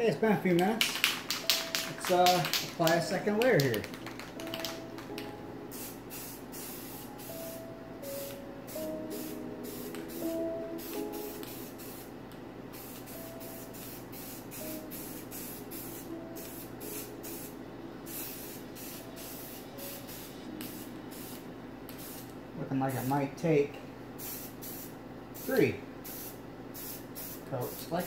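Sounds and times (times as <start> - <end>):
spray paint can hissing: 0.8 - 5.1, 5.7 - 7.4, 8.2 - 12.1, 12.8 - 17.5, 18.1 - 22.3, 24.2 - 27.8.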